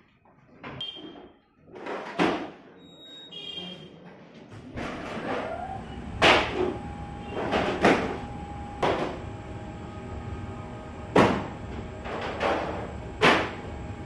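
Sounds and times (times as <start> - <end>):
oven low rumble: 5.0 - 14.0.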